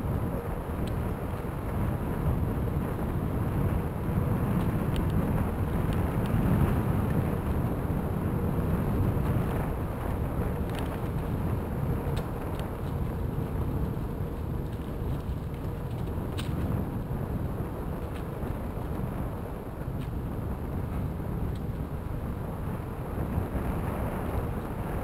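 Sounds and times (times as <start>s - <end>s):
bicycle tyres rolling on gravel: 0.0s - 25.0s
wind on microphone: 0.0s - 25.0s.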